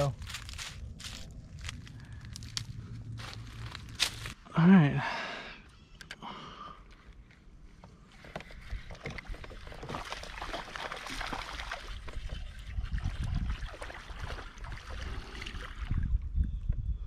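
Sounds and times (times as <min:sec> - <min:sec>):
water splashing: 0:08.7 - 0:15.9.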